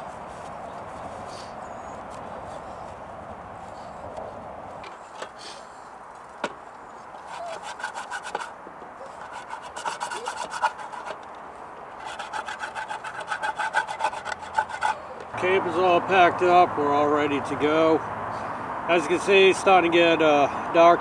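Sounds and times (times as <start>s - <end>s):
dishes scrubbed by hand: 7.2s - 11.2s, 12.0s - 15.0s.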